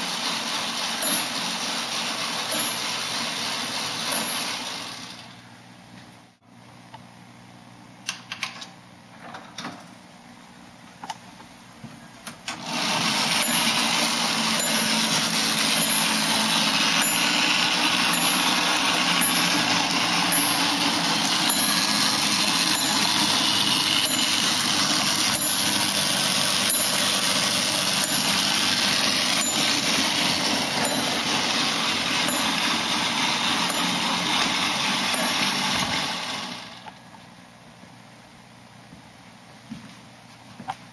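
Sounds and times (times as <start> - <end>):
small electric motor and gears running: 0.0 - 5.5, 12.5 - 37.0.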